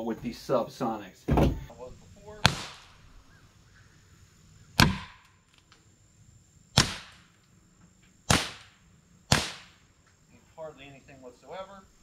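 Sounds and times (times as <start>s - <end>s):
suppressed pistol shots: 2.3s - 3.1s, 4.8s - 5.2s, 6.8s - 7.2s, 8.3s - 8.7s, 9.3s - 9.8s.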